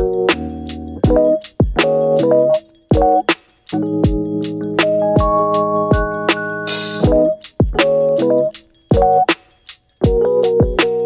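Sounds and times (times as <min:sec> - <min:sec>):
electronic chords over a beat: 0:00.0 - 0:11.0
deep kick drum hits: 0:05.2 - 0:06.2, 0:07.0 - 0:07.8.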